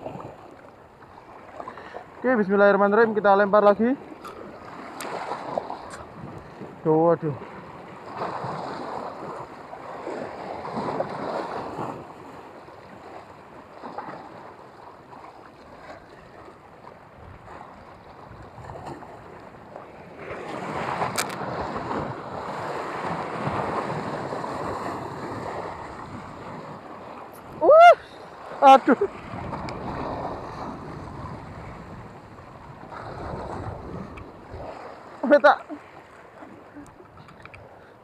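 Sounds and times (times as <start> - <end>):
small waves washing on rocks: 0.0 - 37.8
wind buffeting microphone: 4.4 - 6.8, 15.8 - 35.2.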